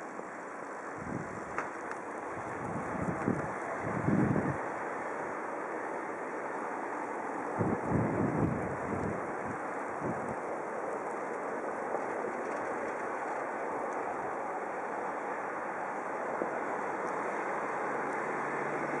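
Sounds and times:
road traffic: 0.0 - 19.0
low engine hum: 13.1 - 19.0.

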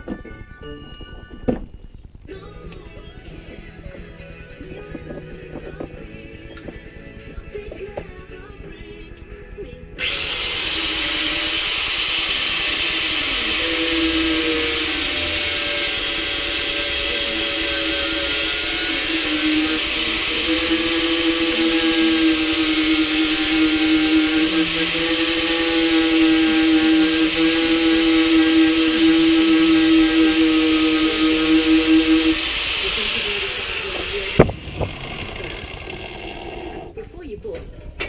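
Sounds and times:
angle grinder grinding metal: 10.0 - 37.0.

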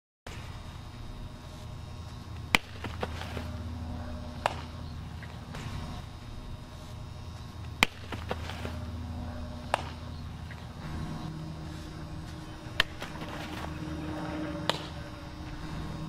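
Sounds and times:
steady low hum: 0.3 - 16.0
softball smacking into glove: 4.4 - 4.8, 9.7 - 10.0.

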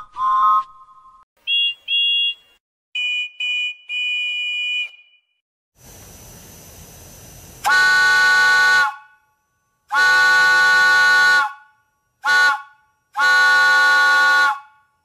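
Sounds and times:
soft steam hiss: 5.8 - 7.7
three-chime steam whistle blasts: 7.6 - 9.2.

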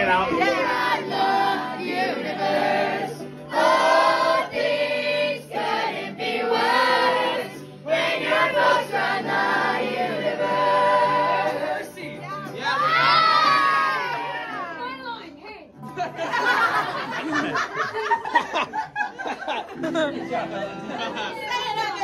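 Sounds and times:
teenagers singing together: 0.0 - 14.8
strummed banjo and guitar: 0.0 - 22.0.

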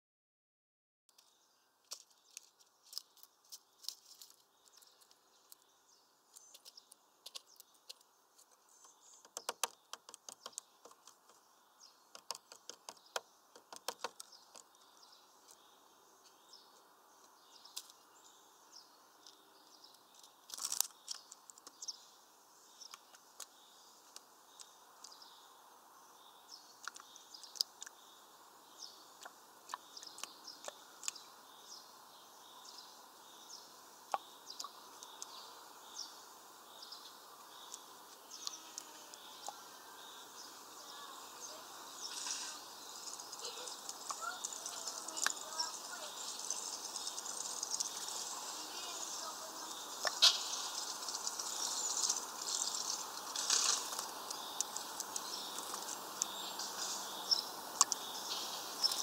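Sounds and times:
faint high bird chirps: 1.1 - 59.0
bird feet tapping on plastic: 8.8 - 11.4, 12.1 - 14.7.

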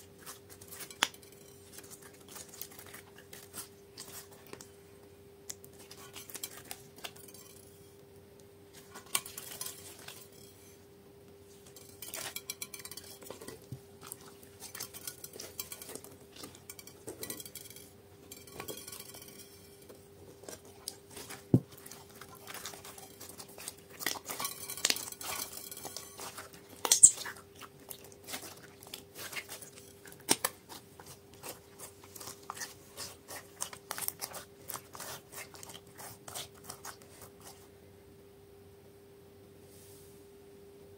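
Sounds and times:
slime clicking and crackling: 22.4 - 37.3.

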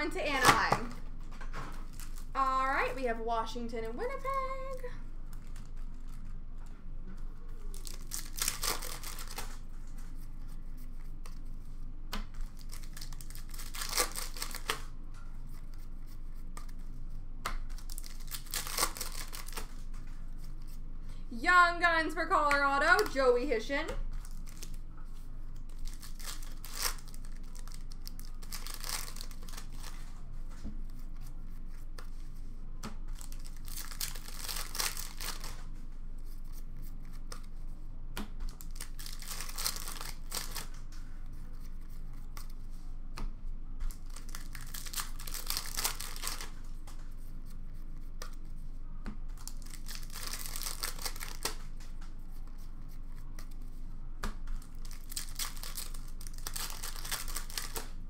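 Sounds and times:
card pack wrappers tearing and crinkling: 7.7 - 9.6, 12.4 - 14.9, 17.7 - 19.8, 24.2 - 24.8, 25.6 - 30.0, 33.2 - 35.7, 38.6 - 40.8, 43.9 - 46.8, 49.4 - 51.7, 54.6 - 58.0.

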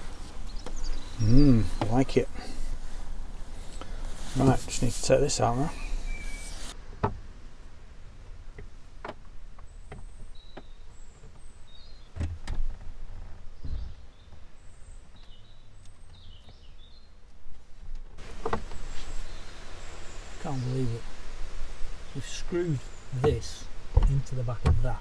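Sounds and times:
faint bird chirps: 0.0 - 2.4, 5.7 - 6.8
knocks and clunks on cupboard: 24.0 - 25.0.

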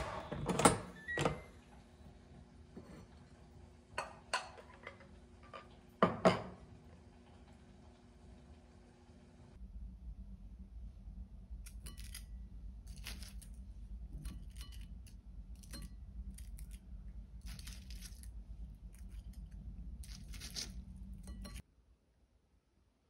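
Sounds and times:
steady low hum: 1.4 - 21.6
crispy cutlet crackling: 11.6 - 21.6.

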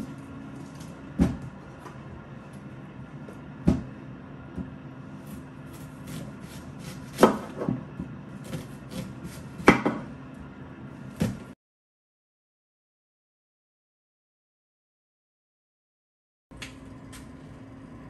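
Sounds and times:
knife chopping on cutting board: 3.6 - 3.9, 4.5 - 10.1, 11.2 - 11.5.

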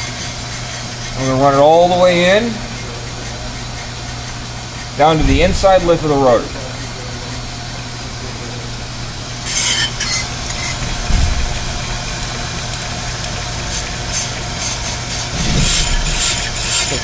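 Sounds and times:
cutting bits scraping rotor: 0.0 - 7.8, 9.4 - 17.0
brake lathe running: 0.0 - 17.0
dull thump: 5.2 - 6.1, 10.8 - 12.1, 15.3 - 16.3.

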